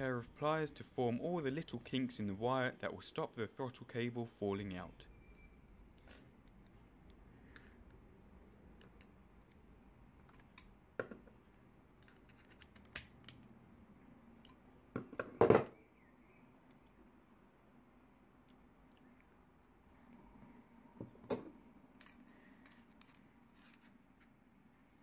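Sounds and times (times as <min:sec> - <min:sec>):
pliers set down on wooden table: 0:15.0 - 0:15.8.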